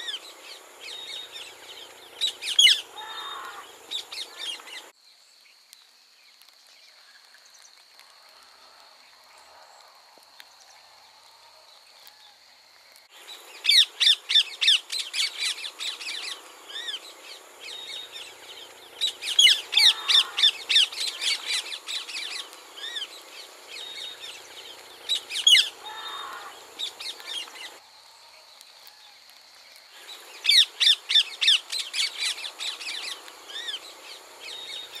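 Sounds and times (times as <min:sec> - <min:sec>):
parakeets screeching: 0:02.2 - 0:03.6, 0:19.2 - 0:23.1, 0:25.1 - 0:27.8.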